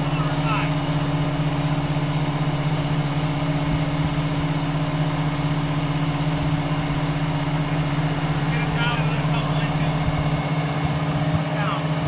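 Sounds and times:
diesel engine droning: 0.0 - 12.0.

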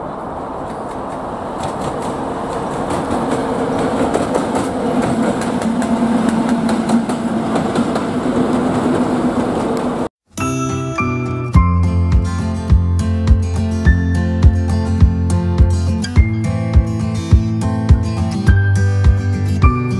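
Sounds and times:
diesel locomotive drone: 0.0 - 10.1
wheels clicking over rail joints: 0.5 - 10.1.

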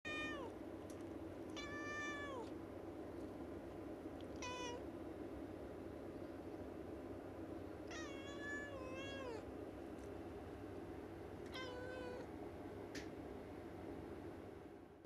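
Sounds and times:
cat meowing: 0.1 - 0.5, 1.6 - 2.5, 4.3 - 4.8, 7.9 - 9.5, 11.5 - 12.3.

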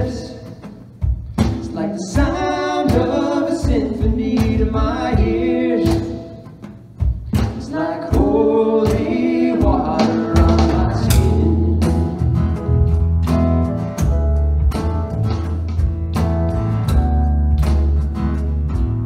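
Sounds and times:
acoustic guitar: 0.0 - 19.0
drums: 0.0 - 19.0
voices singing: 7.4 - 12.2
keyboard: 8.1 - 19.0
electric bass: 9.5 - 19.0.

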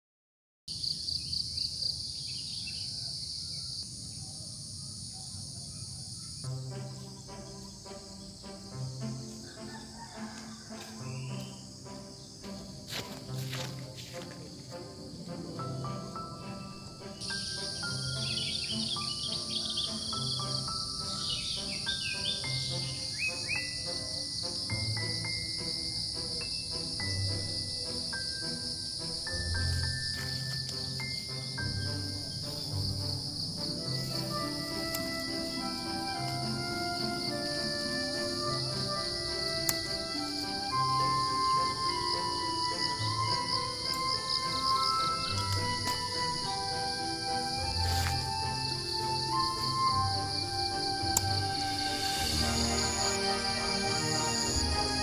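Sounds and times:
birds chirping: 0.7 - 55.0
insects trilling: 0.7 - 55.0
music: 6.0 - 55.0
faint bird chirps: 15.8 - 29.6.

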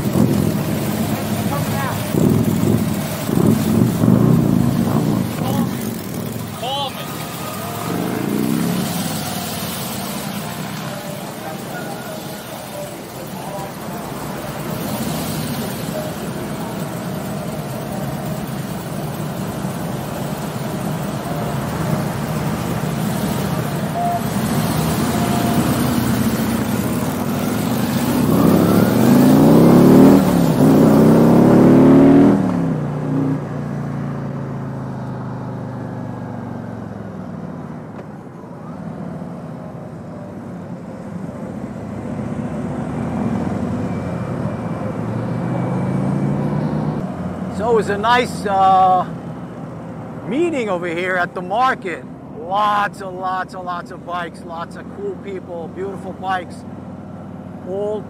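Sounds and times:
motorcycle engine running: 0.0 - 32.6.

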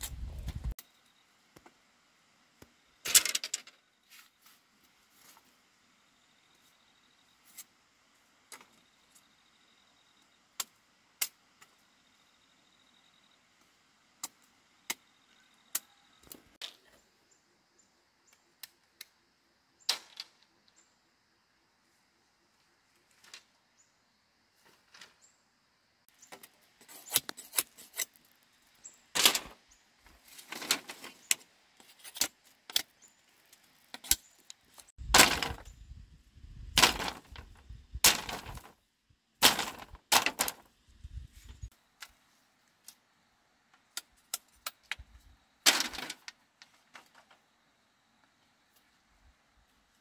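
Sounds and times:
bamboo rattle: 3.0 - 4.3, 26.2 - 35.9, 36.7 - 38.8, 39.4 - 42.2, 43.9 - 47.4
bamboo knocking and clattering: 34.9 - 35.7, 36.8 - 38.8, 39.4 - 40.7, 45.7 - 47.4.

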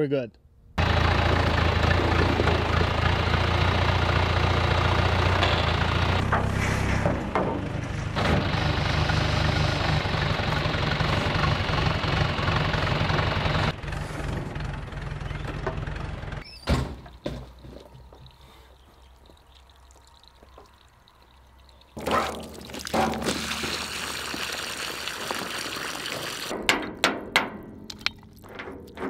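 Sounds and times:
tractor engine running: 0.8 - 29.0
thunk: 16.6 - 17.5
water trickling: 17.9 - 26.5, 27.9 - 29.0
hose water splashing on steel barrel: 19.2 - 26.7.

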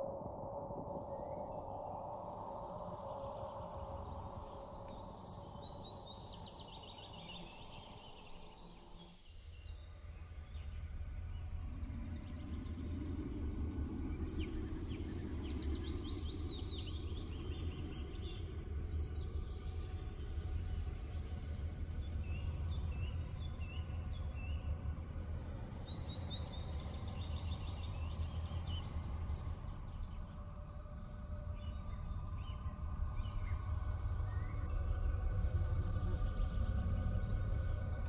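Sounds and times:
low steady rumble: 10.4 - 38.0.

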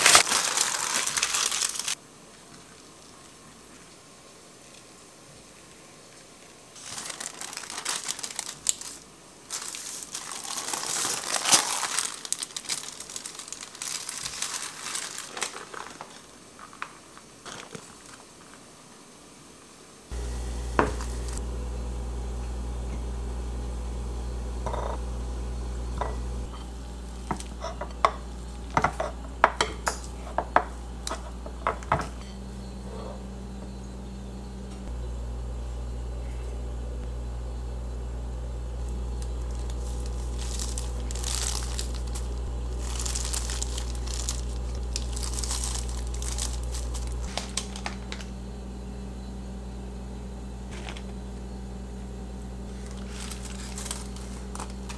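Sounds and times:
plastic bag rustling: 0.0 - 2.0, 6.4 - 18.6, 20.1 - 21.4, 26.0 - 32.0, 39.0 - 48.4, 50.7 - 51.2, 52.6 - 54.9
steady low hum: 20.1 - 54.9.

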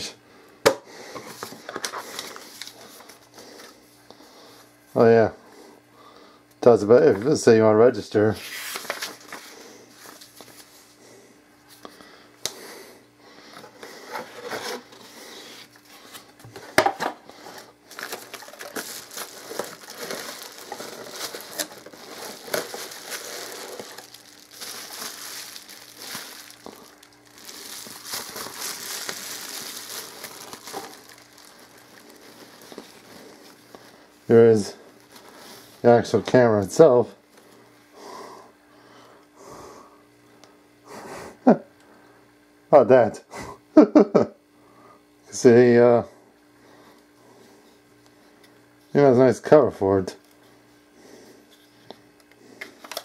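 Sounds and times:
faint steady hum: 0.0 - 53.0
packaging rustling and crinkling: 1.3 - 3.7, 8.4 - 10.7, 13.7 - 34.1, 34.8 - 35.8.

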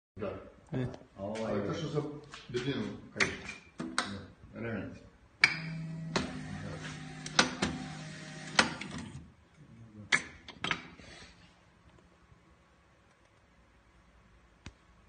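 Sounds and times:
machine motor hum: 5.6 - 9.2.

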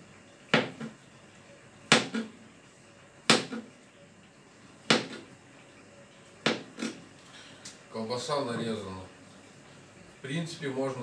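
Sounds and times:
knife knocking on cutting board: 1.9 - 2.3, 3.3 - 3.6, 4.9 - 5.2, 6.4 - 6.9.

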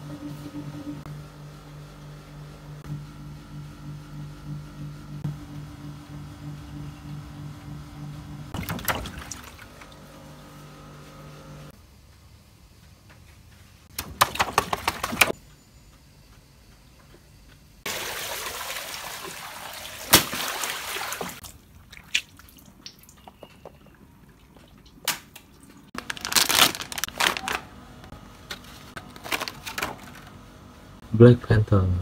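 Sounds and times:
water gushing: 17.9 - 21.4
crackling: 26.0 - 27.7
plastic packaging crinkling: 26.0 - 27.8, 28.6 - 30.2.

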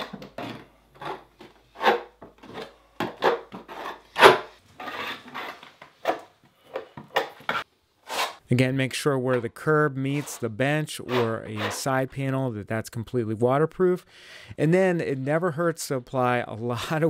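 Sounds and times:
putty knife scraping board: 0.0 - 8.4, 10.1 - 11.9.

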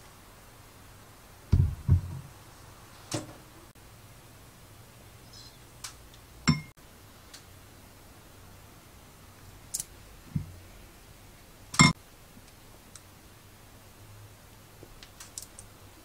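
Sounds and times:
bottles knocking on glass bowl: 6.5 - 6.7.

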